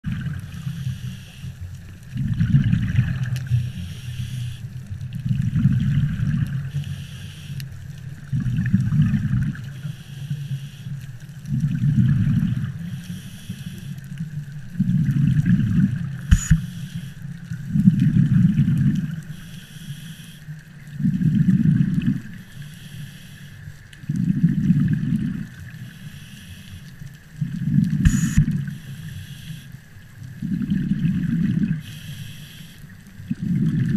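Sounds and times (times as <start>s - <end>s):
bubbly underwater exhale: 0.0s - 1.4s, 2.0s - 7.3s, 8.2s - 9.9s, 11.4s - 16.9s, 17.5s - 19.5s, 20.8s - 22.5s, 23.6s - 33.9s
regulator inhale hiss: 0.6s - 1.7s, 3.4s - 4.8s, 6.6s - 7.8s, 9.7s - 11.2s, 12.5s - 14.2s, 16.2s - 17.5s, 19.2s - 20.7s, 22.3s - 23.8s, 25.3s - 27.1s, 27.9s - 29.9s, 31.8s - 33.0s
sharp clicks: 16.2s - 16.8s, 28.0s - 28.6s.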